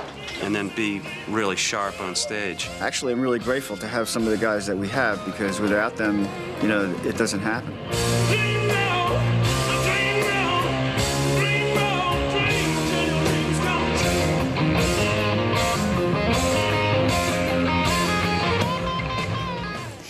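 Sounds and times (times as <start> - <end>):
electric guitar: 5.2 - 20.0
person singing: 7.9 - 18.1.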